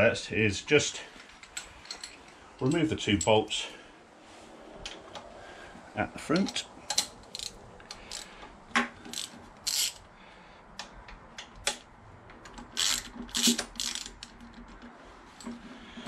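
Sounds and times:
light metallic clicks and rubs: 1.1 - 3.7
socket ratchet clicking: 6.4 - 8.3, 9.0 - 10.1, 10.8 - 14.8.

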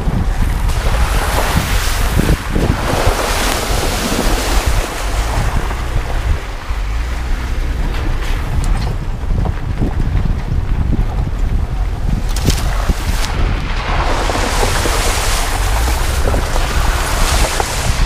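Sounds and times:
water splashing off tyres: 0.0 - 18.0
wind buffeting microphone: 0.0 - 18.0
car driving through puddle: 0.2 - 9.8, 12.1 - 18.0.

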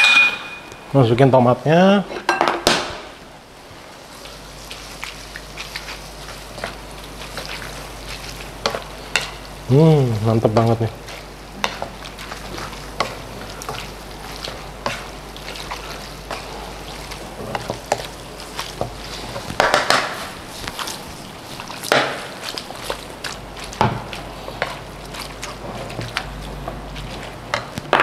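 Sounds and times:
spatula tapping and scraping pan: 8.6 - 9.4, 11.6 - 13.9, 17.1 - 20.9.

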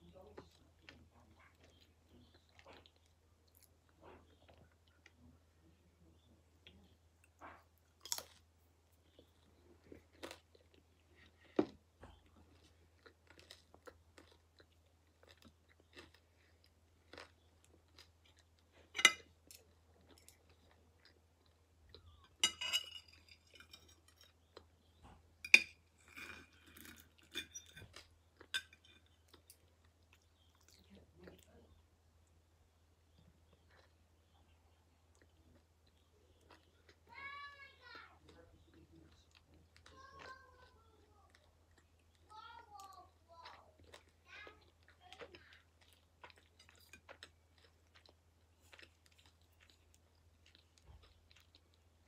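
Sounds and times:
chewing and crunching food: 0.0 - 52.0
cutlery clicking on plate: 22.4 - 24.2.

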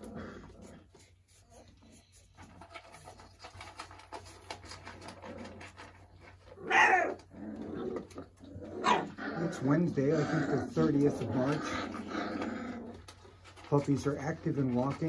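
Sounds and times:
puppy yelping: 6.4 - 13.0.

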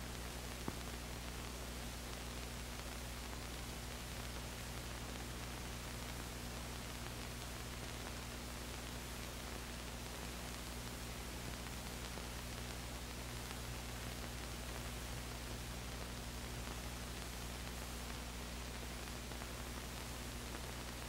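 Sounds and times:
film soundtrack hiss and hum: 0.0 - 21.0.

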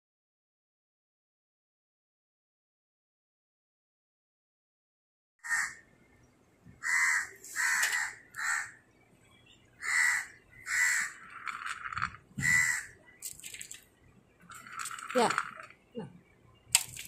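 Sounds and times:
crow cawing: 5.4 - 5.8, 6.8 - 8.8, 9.8 - 11.3, 12.4 - 13.0.

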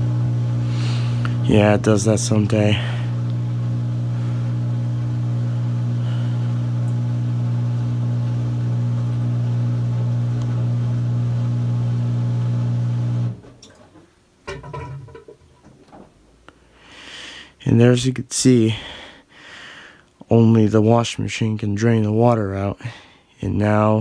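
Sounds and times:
washer drain pump humming: 0.0 - 16.2.

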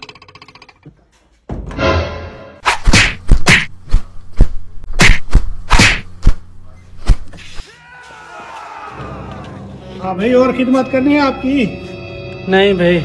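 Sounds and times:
punch and slap impacts: 2.6 - 6.4, 7.0 - 7.3.

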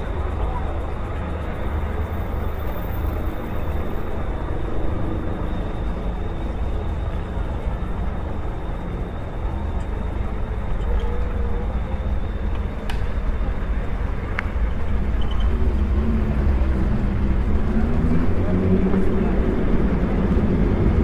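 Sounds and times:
street traffic noise: 0.0 - 21.0
wind rumble on microphone: 0.0 - 21.0.

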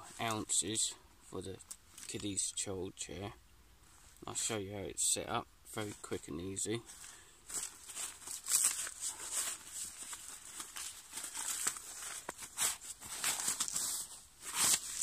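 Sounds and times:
nylon fabric rustling: 6.9 - 15.0.

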